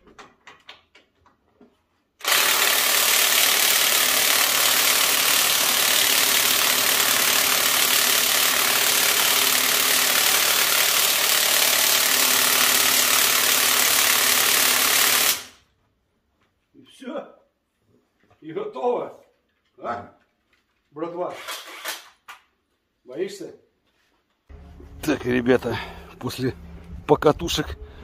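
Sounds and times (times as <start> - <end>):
faint hum: 24.5 - 28.0
machine running loudly: 24.5 - 28.0.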